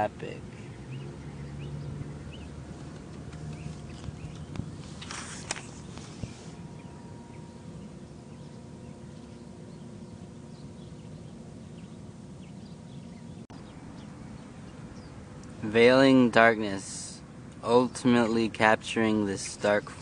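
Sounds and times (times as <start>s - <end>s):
low background hum: 0.0s - 20.0s
brief rustle: 2.8s - 6.6s.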